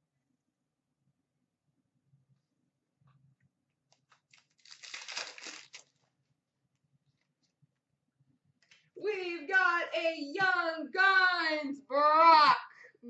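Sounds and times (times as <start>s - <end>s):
cards and wrapper rustling: 4.1s - 6.0s
foil pack ripping open: 4.3s - 6.0s.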